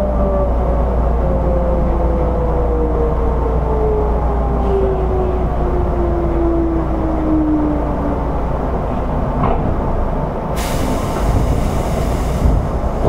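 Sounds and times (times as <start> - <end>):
train low rumble: 0.0 - 13.0
compressed air hissing: 10.6 - 13.0.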